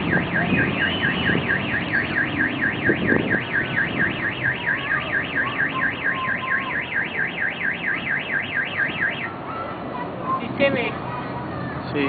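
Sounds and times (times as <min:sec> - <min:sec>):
electronic alarm siren warbling: 0:00.0 - 0:09.3.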